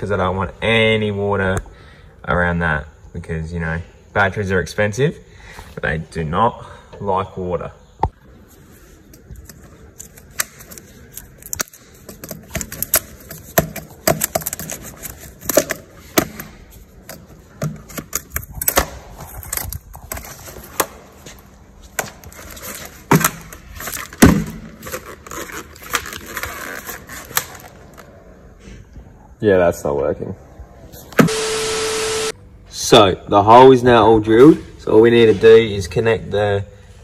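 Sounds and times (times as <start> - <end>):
plastic hose clicking and crackling: 9.1 - 21.0, 22.0 - 28.1.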